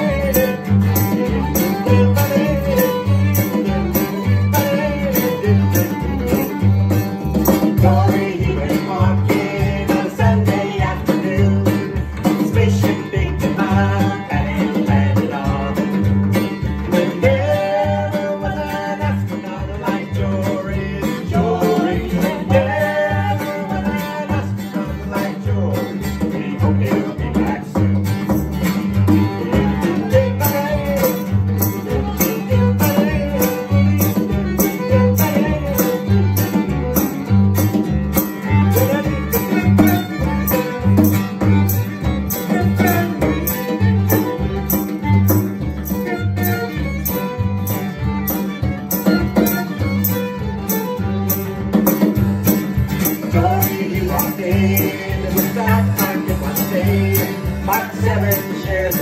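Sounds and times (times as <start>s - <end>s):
drum steady beat: 0.0s - 17.3s, 26.4s - 59.0s
fiddle: 0.0s - 59.0s
strummed acoustic guitar: 0.0s - 59.0s
upright bass: 0.0s - 59.0s
voices singing together: 7.7s - 16.0s, 16.9s - 27.8s, 53.2s - 59.0s.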